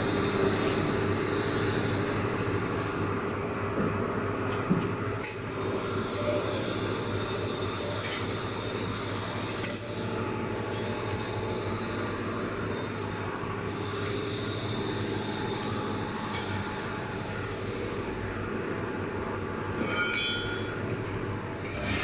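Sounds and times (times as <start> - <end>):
air compressors humming and clattering: 0.0 - 22.0.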